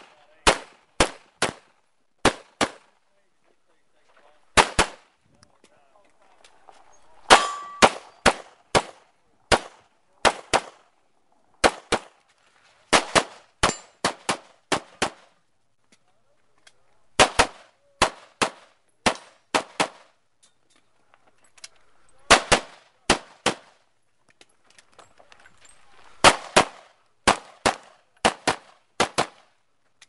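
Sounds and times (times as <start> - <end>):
pistol shots: 0.0 - 2.9, 4.5 - 5.0, 7.3 - 10.9, 11.6 - 12.2, 12.9 - 15.3, 17.2 - 20.1, 22.3 - 23.8, 26.2 - 29.5
metallic ring: 6.9 - 7.9.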